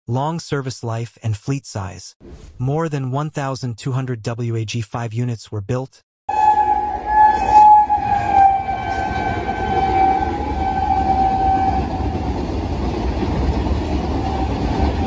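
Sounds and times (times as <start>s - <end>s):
electric locomotive horn: 6.3s - 12.5s, 14.1s - 15.0s.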